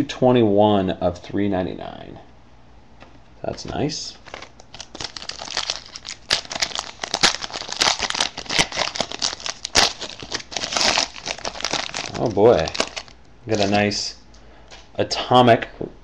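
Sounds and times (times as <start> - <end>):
foil wrapper crinkling and tearing: 4.1 - 13.9.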